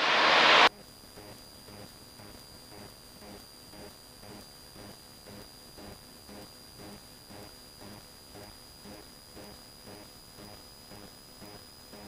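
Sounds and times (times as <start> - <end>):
high-pitched whine: 0.0 - 0.7.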